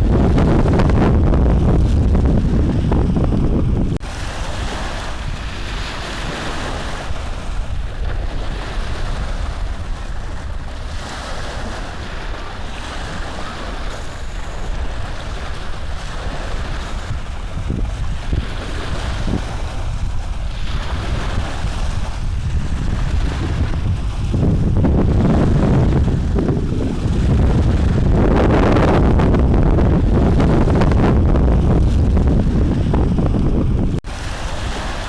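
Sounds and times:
rushing noise on microphone: 0:00.0 - 0:35.0.

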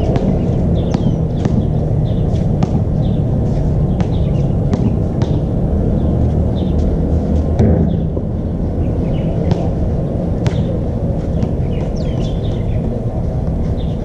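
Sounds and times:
basketball bouncing: 0:00.0 - 0:05.6, 0:07.6 - 0:08.3, 0:09.4 - 0:09.8, 0:10.4 - 0:12.4
low rumble: 0:00.0 - 0:14.0.

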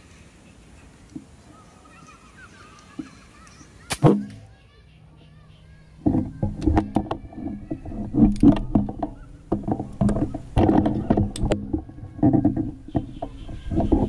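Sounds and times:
handling clicks and rustling: 0:05.9 - 0:14.0.

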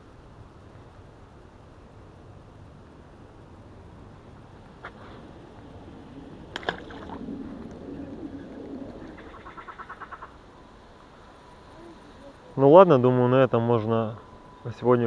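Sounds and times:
dove cooing: 0:05.4 - 0:10.5
fish splashing into water: 0:06.5 - 0:07.6.

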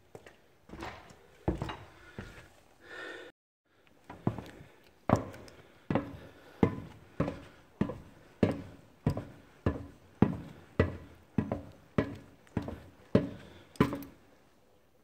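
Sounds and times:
footsteps on metal escalator: 0:05.1 - 0:14.2.

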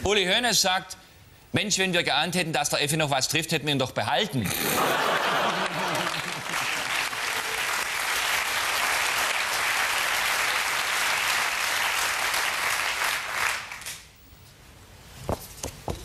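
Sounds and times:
studio audience applauding: 0:05.0 - 0:14.0.

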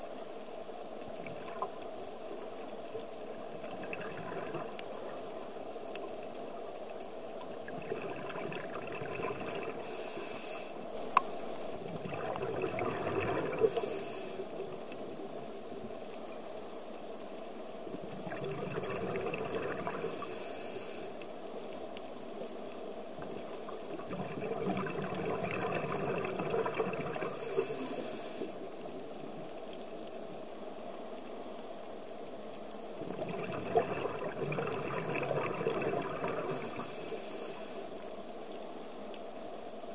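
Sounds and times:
exhaled bubbles rushing: 0:03.5 - 0:05.1, 0:07.6 - 0:10.0, 0:11.8 - 0:13.9, 0:18.1 - 0:20.2, 0:23.2 - 0:28.0, 0:33.0 - 0:37.2
regulator inhale hiss: 0:09.7 - 0:10.9, 0:13.2 - 0:14.6, 0:19.8 - 0:21.2, 0:27.3 - 0:28.6, 0:36.3 - 0:38.0.

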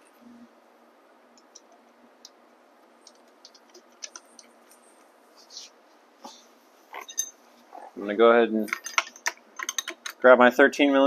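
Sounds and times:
small metallic clicks of nuts and washers: 0:08.7 - 0:10.2.

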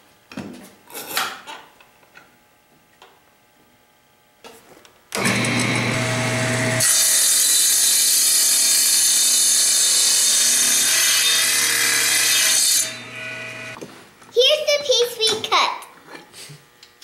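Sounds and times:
saw blade cutting wood: 0:05.2 - 0:13.8
table saw motor running: 0:05.2 - 0:13.8.

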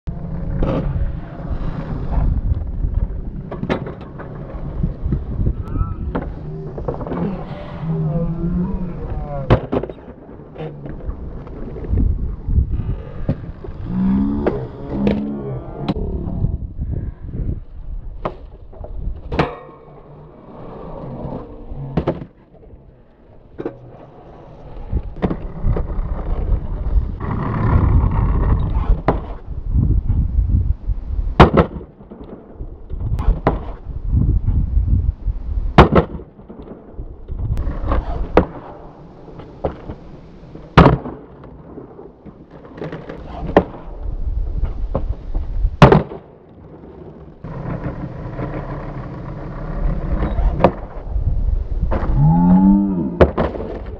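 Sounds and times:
skateboard wheels rolling on concrete: 0:00.1 - 0:53.9
skateboard cracks: 0:09.0 - 0:15.4, 0:31.4 - 0:33.8, 0:35.8 - 0:51.2, 0:53.2 - 0:53.9.

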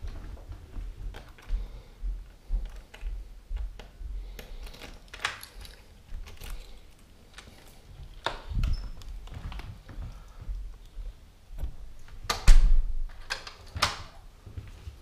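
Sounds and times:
footsteps on wooden floor: 0:00.0 - 0:04.4, 0:07.8 - 0:12.2, 0:14.4 - 0:15.0.

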